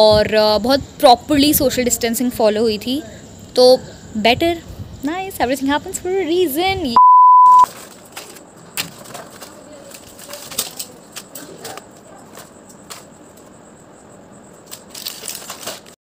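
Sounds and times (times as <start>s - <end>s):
blister packs crinkling: 7.7s - 11.9s, 14.7s - 16.0s.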